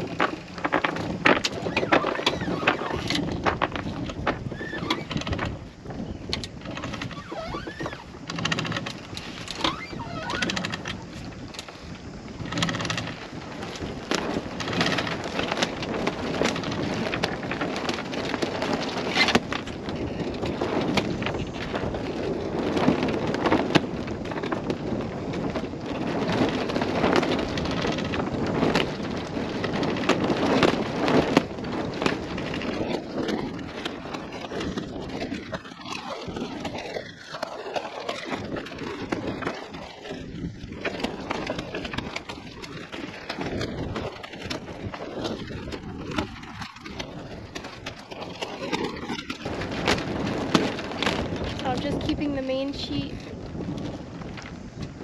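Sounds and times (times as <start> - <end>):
rigging knocks and clicks: 0.0 - 21.9
sailcloth flapping and rustling: 0.0 - 55.0
wind on microphone: 0.0 - 55.0.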